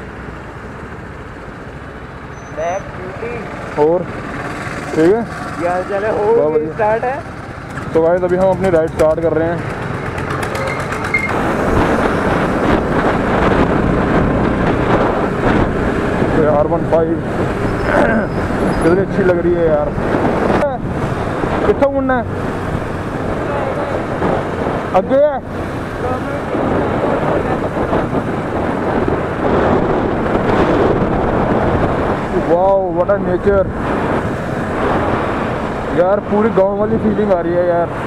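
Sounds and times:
road noise: 0:00.0 - 0:38.0
motorcycle engine running: 0:02.9 - 0:36.8
wind on microphone: 0:10.6 - 0:38.0.

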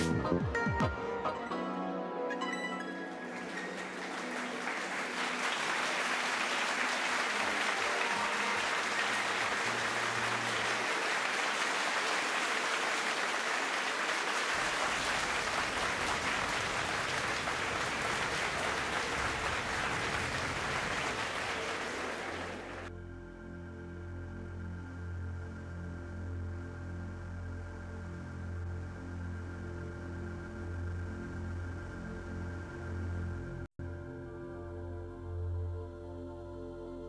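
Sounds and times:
crowd applauding: 0:02.7 - 0:22.9.

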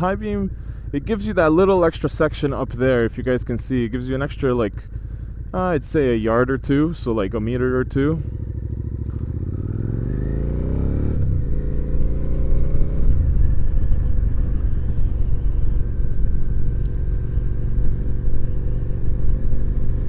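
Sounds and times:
motorcycle engine shifting gears: 0:01.5 - 0:20.0.

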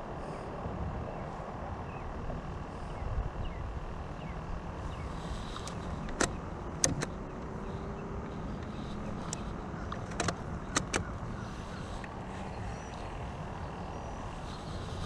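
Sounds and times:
steady low rumble: 0:00.0 - 0:15.0
sharp clicks or knocks: 0:05.6 - 0:07.2, 0:09.3 - 0:11.1.

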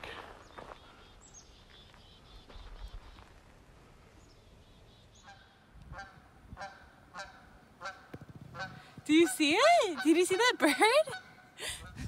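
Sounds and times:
goose honking: 0:05.3 - 0:11.4.

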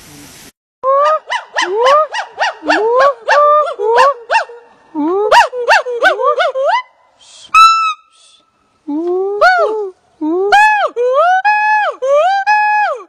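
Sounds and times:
gibbon whooping calls: 0:00.9 - 0:04.6.

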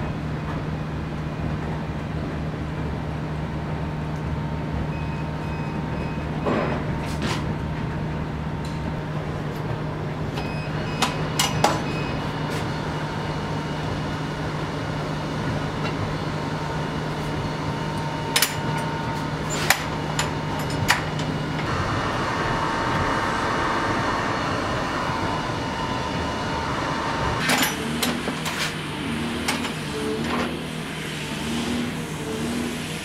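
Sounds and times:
steady low hum: 0:07.5 - 0:33.0.

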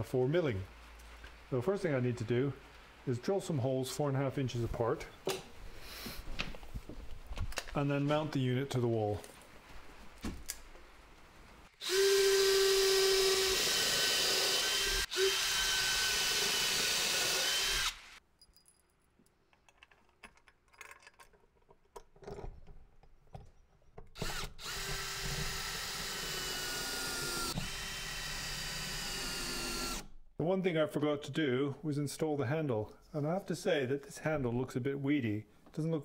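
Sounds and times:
electric drill boring wood: 0:11.8 - 0:18.2, 0:24.2 - 0:30.1.

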